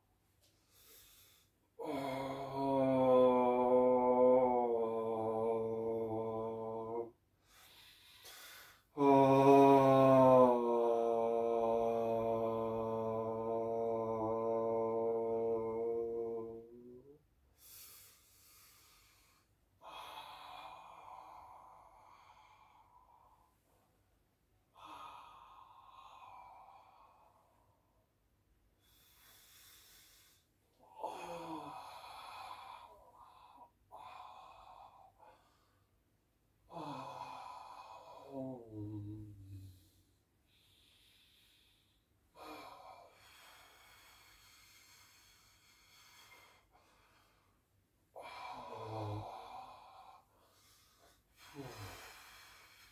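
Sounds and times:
man breathing deeply: 0.5s - 3.6s, 7.3s - 9.0s, 17.5s - 23.8s, 28.7s - 36.1s, 36.7s - 52.9s.

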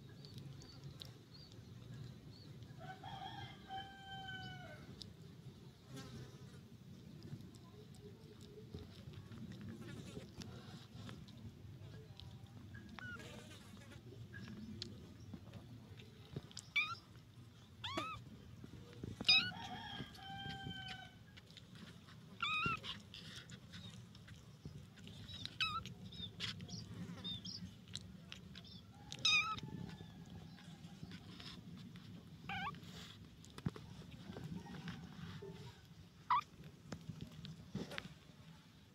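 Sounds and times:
kittens mewing: 17.8s - 18.3s, 19.2s - 19.5s, 22.4s - 23.6s, 25.4s - 26.5s, 29.1s - 29.6s, 32.4s - 33.1s.

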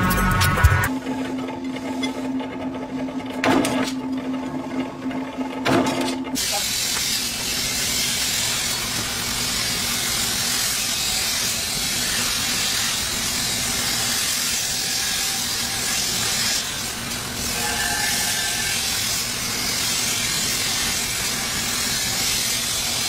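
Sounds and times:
low motor hum: 0.0s - 6.4s
belt grinder grinding hiss: 6.4s - 23.0s.

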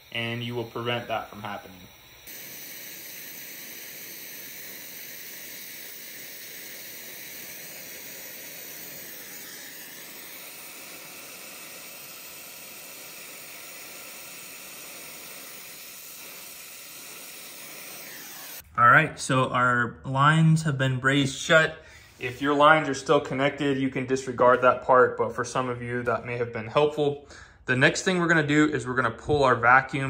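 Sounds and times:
torch flame hissing: 0.0s - 18.6s.

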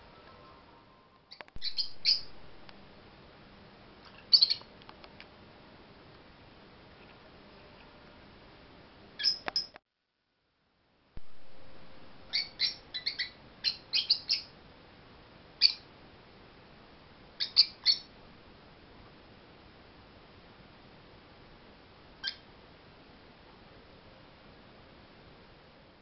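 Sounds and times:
lovebirds chirping: 1.3s - 2.9s, 4.2s - 4.7s, 11.2s - 14.5s, 15.6s - 15.9s, 17.4s - 18.1s.

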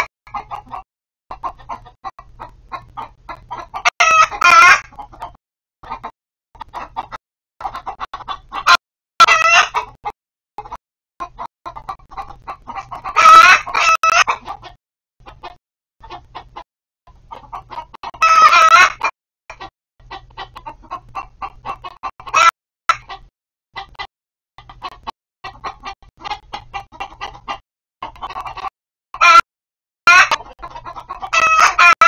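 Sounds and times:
hens clucking: 0.0s - 29.5s, 30.1s - 32.0s
hen squawking calls: 2.7s - 4.9s, 8.6s - 9.9s.

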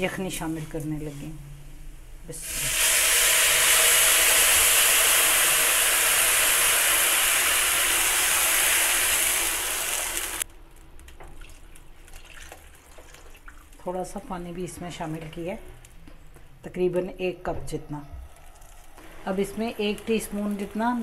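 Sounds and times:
water pouring into pan: 2.4s - 10.4s
oil sizzling in a wok: 2.4s - 10.5s
broth pouring: 11.3s - 13.9s.

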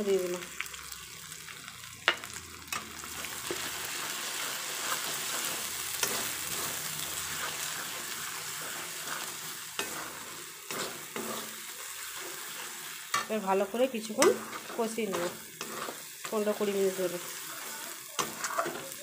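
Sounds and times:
onions sizzling in hot oil: 0.0s - 19.0s
spatula scraping pan: 2.7s - 13.4s, 14.0s - 19.0s.

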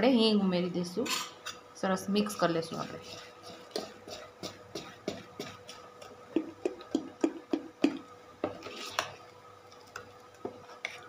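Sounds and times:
metal spoon scraping metal bowl: 2.7s - 5.8s.

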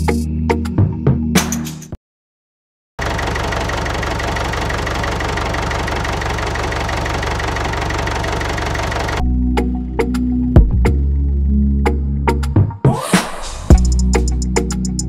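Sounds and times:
music: 0.0s - 2.0s, 9.2s - 15.0s.

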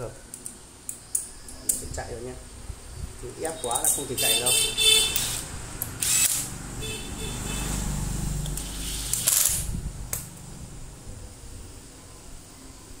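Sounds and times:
cordless drill motor drone: 5.2s - 5.4s, 6.0s - 6.5s, 8.5s - 9.6s.

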